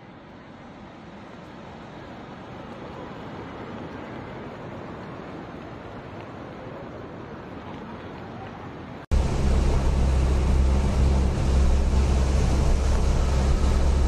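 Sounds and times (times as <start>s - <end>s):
floodwater rushing over road: 0.3s - 14.0s
wind buffeting microphone: 3.0s - 14.0s
heavy rain: 8.9s - 14.0s
low hum: 9.1s - 14.0s.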